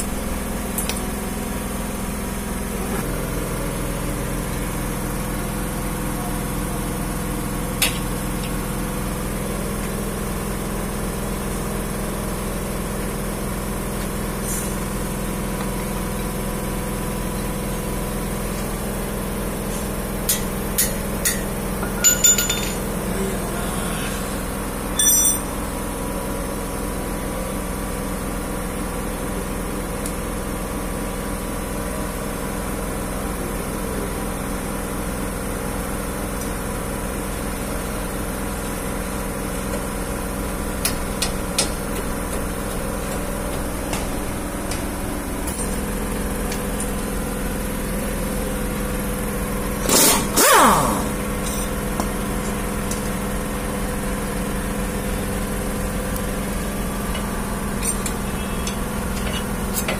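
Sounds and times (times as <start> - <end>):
sharp metallic clinks: 21.8 - 22.9, 25.0 - 25.5.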